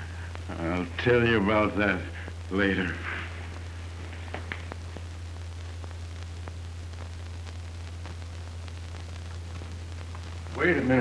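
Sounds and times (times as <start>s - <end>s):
low hum and hiss: 0.0s - 11.0s
faint crackling clicks: 2.0s - 10.6s.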